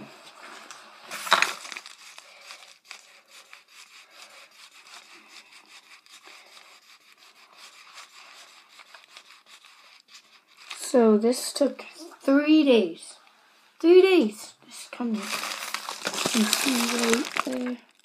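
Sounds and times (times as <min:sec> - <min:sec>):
pen scratching on package: 0:01.1 - 0:10.8, 0:15.2 - 0:17.6.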